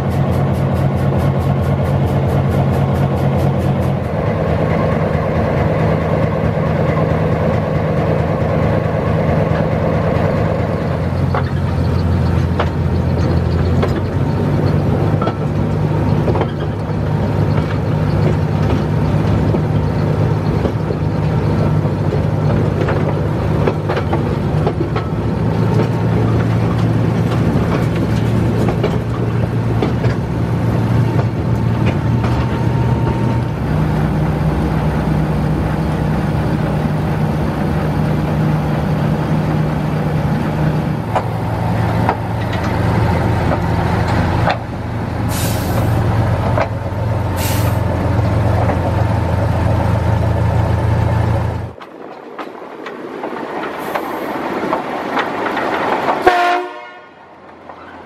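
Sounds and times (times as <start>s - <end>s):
diesel locomotive engine running: 0.0s - 52.0s
air brake hisses: 45.3s - 46.0s, 47.4s - 47.9s.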